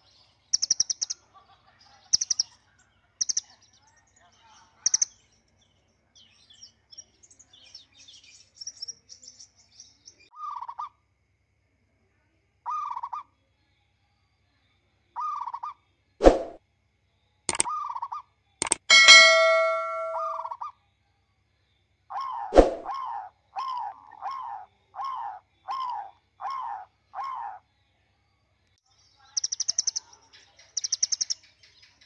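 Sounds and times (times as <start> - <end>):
faint bird chirps: 0.0 - 10.9, 28.9 - 32.0
sharp clicks: 18.6 - 18.9
ringing bell ding: 18.8 - 20.4.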